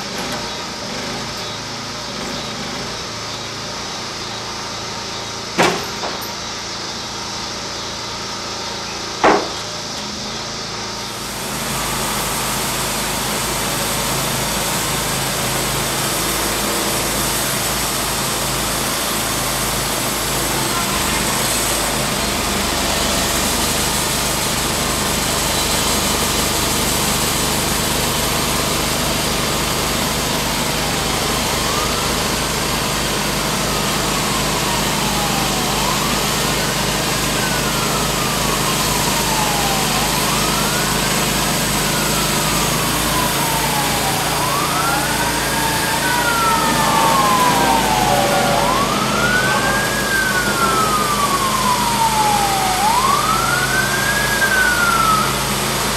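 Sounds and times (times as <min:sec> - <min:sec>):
band sawmill sawing log: 0:00.0 - 0:55.9
emergency vehicle siren wailing: 0:11.2 - 0:55.9.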